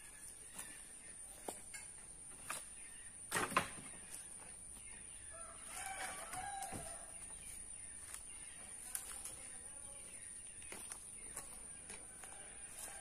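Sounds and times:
logs knocking together: 0:03.3 - 0:04.1
faint rooster crowing: 0:05.3 - 0:07.3, 0:12.0 - 0:13.0.

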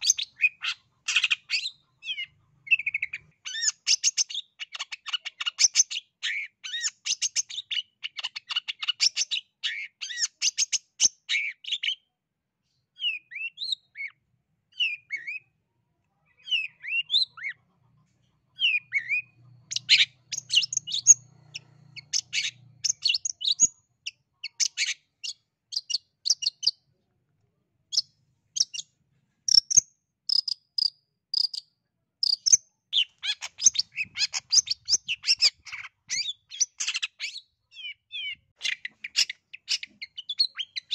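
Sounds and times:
bird singing chattering notes: 0:18.6 - 0:26.8, 0:29.5 - 0:40.9.

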